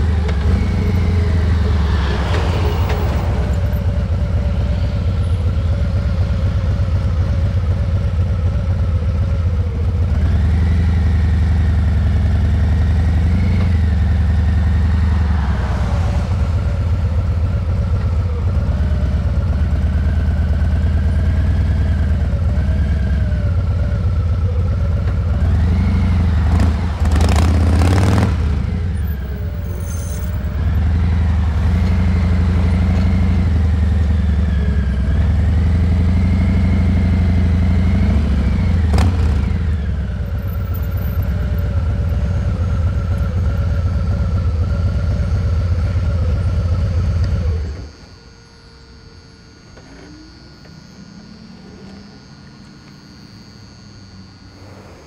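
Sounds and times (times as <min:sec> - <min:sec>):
motorcycle engine running: 0:00.0 - 0:55.0
faint hum: 0:22.0 - 0:55.0.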